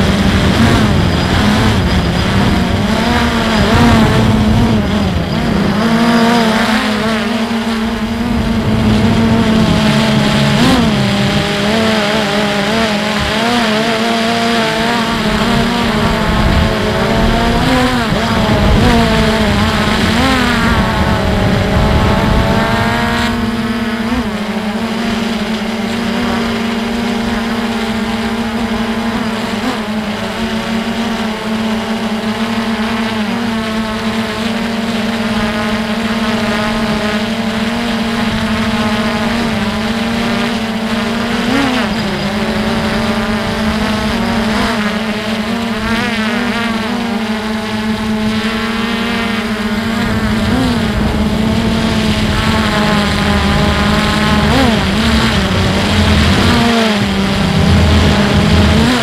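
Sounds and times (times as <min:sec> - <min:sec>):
wind rumble on microphone: 0:00.0 - 0:30.9, 0:48.0 - 0:59.0
drone motors whining: 0:00.0 - 0:59.0.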